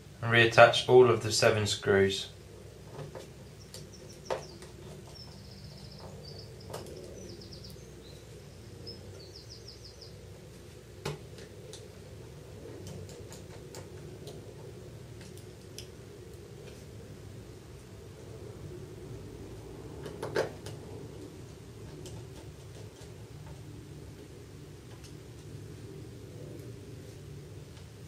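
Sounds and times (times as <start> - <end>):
steady low hum: 0.0 - 28.0
bird chirping in trills: 3.4 - 10.2.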